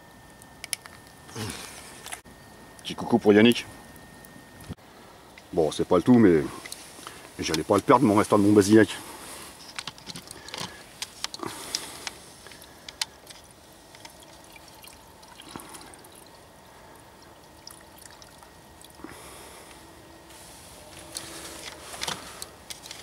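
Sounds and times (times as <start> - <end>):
liquid being poured: 13.6 - 19.2.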